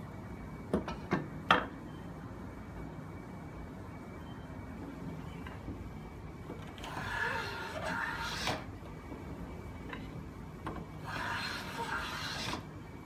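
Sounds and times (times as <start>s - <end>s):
hand plane blade slicing wood: 11.1s - 12.6s.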